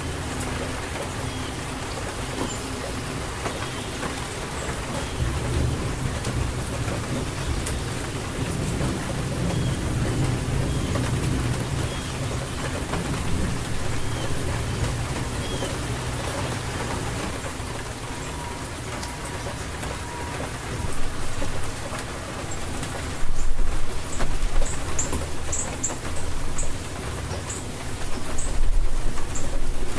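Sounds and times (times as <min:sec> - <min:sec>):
rain falling: 0:00.0 - 0:29.9
thunder rumble: 0:05.1 - 0:18.5.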